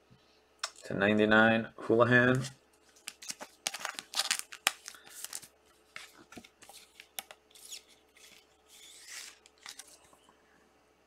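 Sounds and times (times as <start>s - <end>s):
plastic card sleeve crinkling: 2.4s - 10.2s.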